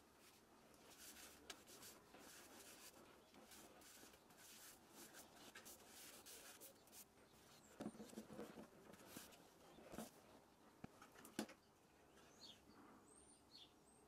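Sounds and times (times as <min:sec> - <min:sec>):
hands rubbing and scraping wood: 0:00.2 - 0:10.2.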